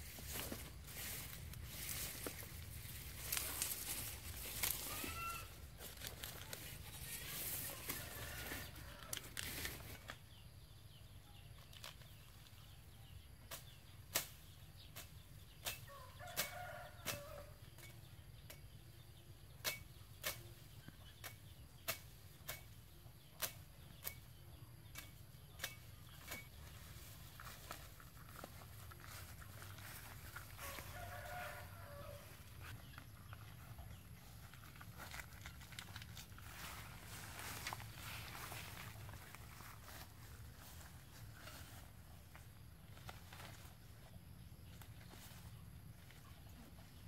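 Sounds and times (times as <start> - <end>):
stalks and leaves rustling: 0.0 - 10.5, 11.5 - 18.6, 19.5 - 47.0
cleaver cutting through stalks: 24.9 - 26.7.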